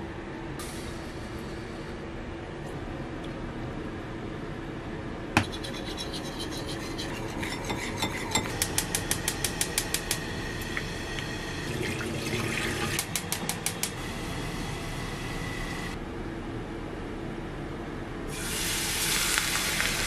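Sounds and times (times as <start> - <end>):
gas stove igniter clicking: 8.6 - 10.2, 13.0 - 14.0.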